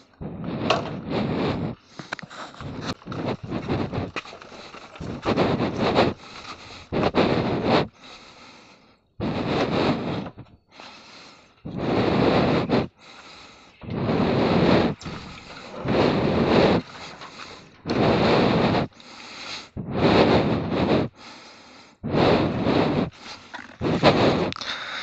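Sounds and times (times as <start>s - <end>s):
wind rumbling on microphone: 0.0s - 8.0s, 9.2s - 10.7s, 11.6s - 13.0s, 13.8s - 19.0s, 19.7s - 21.2s, 22.0s - 24.6s.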